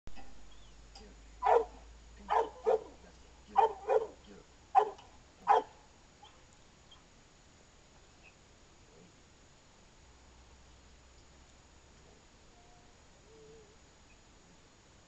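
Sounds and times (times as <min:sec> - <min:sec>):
dog barking: 0:01.4 - 0:03.0, 0:03.6 - 0:04.2, 0:04.8 - 0:05.8.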